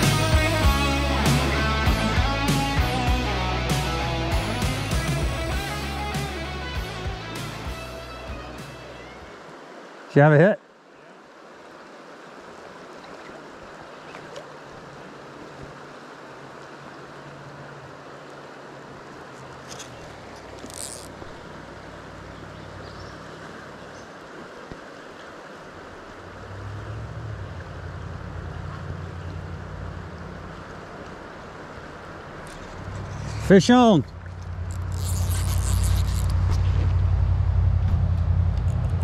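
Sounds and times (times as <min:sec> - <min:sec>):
river current rushing: 0:00.0 - 0:39.0
low rumble: 0:26.3 - 0:39.0.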